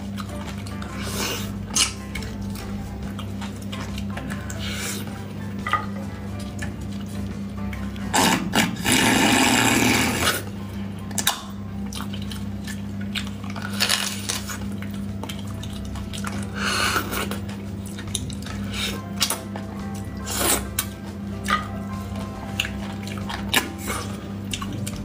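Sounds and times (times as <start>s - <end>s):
mouth smacks and clicks: 0.0s - 5.1s
noisy sucking of marrow: 0.0s - 5.2s, 5.8s - 25.0s.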